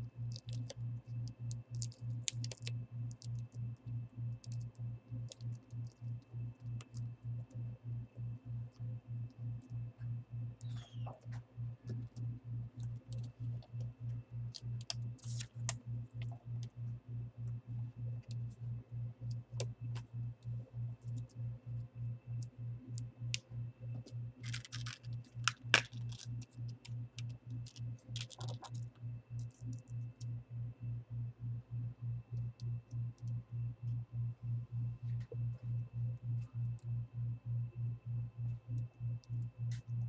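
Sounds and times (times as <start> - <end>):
pulsing low hum: 0.0 - 40.0
plastic wrap crinkling: 24.4 - 26.5, 27.5 - 28.8.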